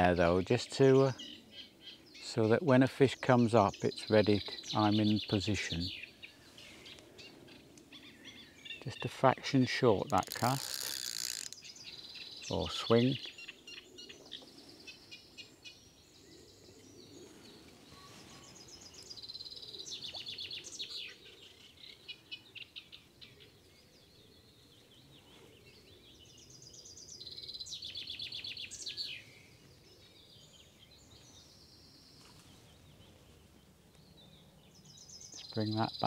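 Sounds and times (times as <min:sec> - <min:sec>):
bird chirps: 0:03.3 - 0:36.0
small songbird trilling: 0:10.0 - 0:13.8.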